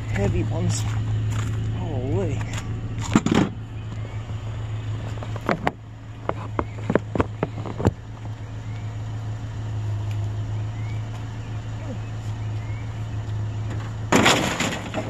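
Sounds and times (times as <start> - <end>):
pickup truck engine idling: 0.0 - 15.0
chair clattering into truck bed: 13.8 - 15.0.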